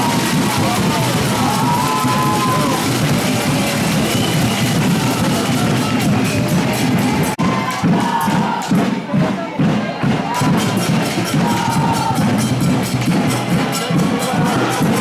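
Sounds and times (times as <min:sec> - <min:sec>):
drums: 0:00.0 - 0:15.0.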